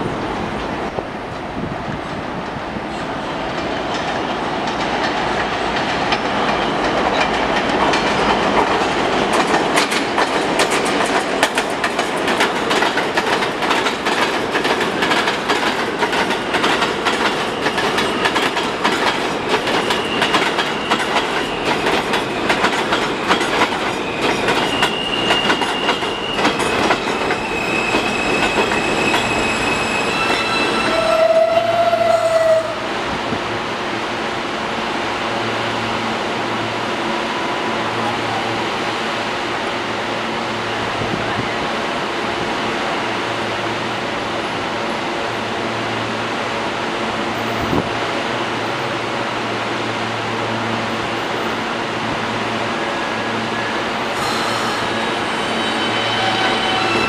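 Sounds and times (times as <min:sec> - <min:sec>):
subway train rumble: 0:00.0 - 0:57.0
wheels clicking over rail joints: 0:03.6 - 0:29.4
high-pitched brake squeals: 0:24.1 - 0:32.6, 0:53.5 - 0:57.0.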